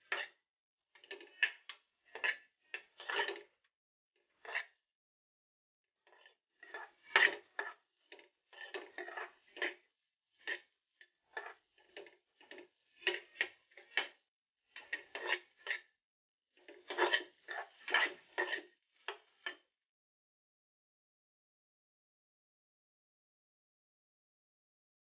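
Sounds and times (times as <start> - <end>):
metal spoon scraping a pan: 0.0 - 3.6, 4.2 - 4.8, 6.0 - 19.7.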